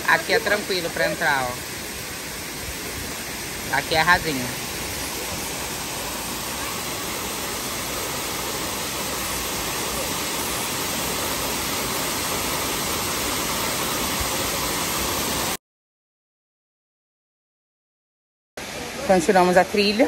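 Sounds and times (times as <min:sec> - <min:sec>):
waterfall rushing: 0:00.0 - 0:15.6.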